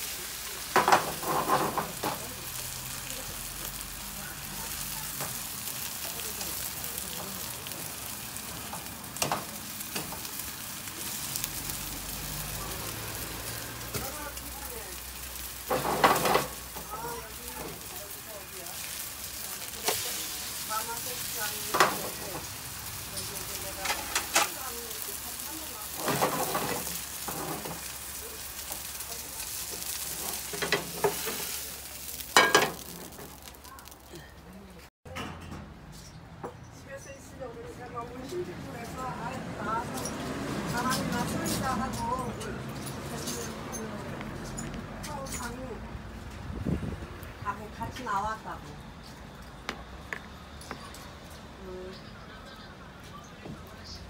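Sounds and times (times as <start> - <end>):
pancake sizzling in oil: 0.0 - 34.2.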